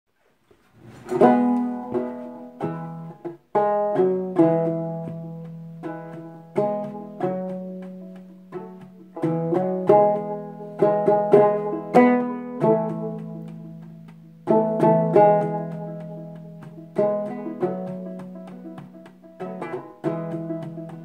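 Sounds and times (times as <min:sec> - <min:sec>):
banjo plucking and strumming: 0:00.5 - 0:21.0.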